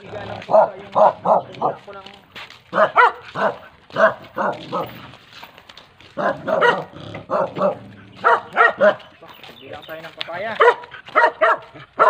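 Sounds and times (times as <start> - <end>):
dog barking: 0.4 - 1.8, 2.7 - 5.0, 6.2 - 9.1, 10.6 - 12.0.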